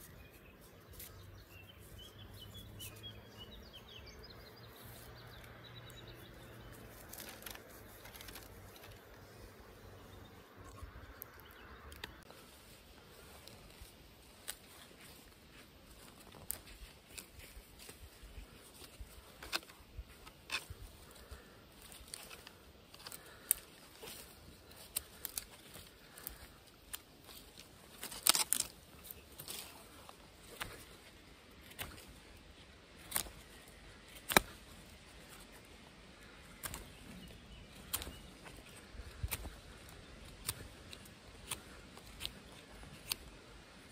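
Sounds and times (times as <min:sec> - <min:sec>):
knife scraping bark off branch: 0:27.6 - 0:28.8, 0:34.1 - 0:34.6, 0:37.8 - 0:43.4
knife cutting wooden stick: 0:40.4 - 0:43.4.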